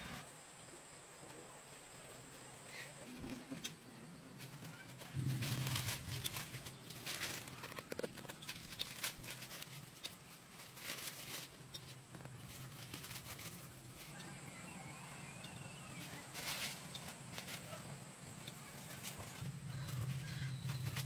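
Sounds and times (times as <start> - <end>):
leaves rustling: 0.0 - 21.0
footsteps through grass: 4.4 - 21.0.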